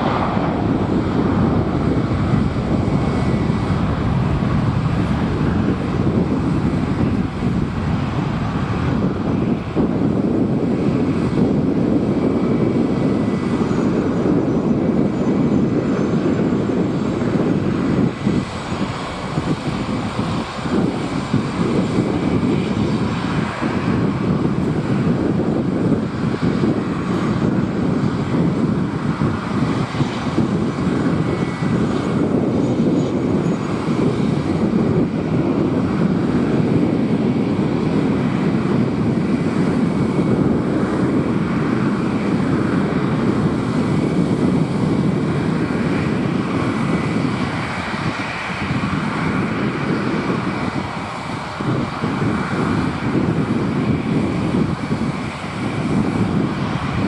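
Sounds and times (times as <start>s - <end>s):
jet engines rumbling and whining: 0.0s - 57.0s.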